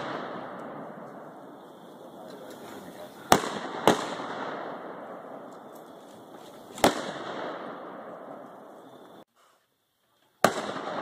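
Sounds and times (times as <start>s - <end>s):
gunshots with long echo: 0.0s - 2.0s, 3.2s - 5.5s, 6.7s - 8.9s, 10.4s - 11.0s.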